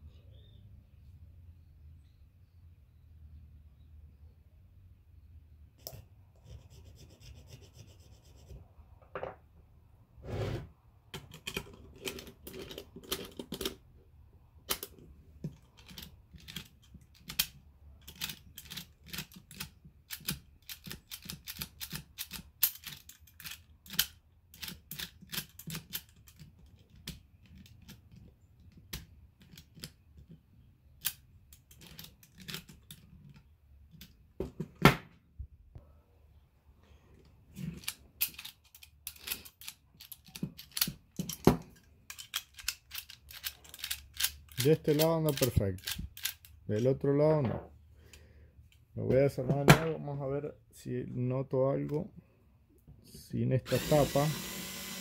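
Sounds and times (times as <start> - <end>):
knocks and scrapes: 10.2 - 13.8
key turning in lock clicking: 37.8 - 46.5.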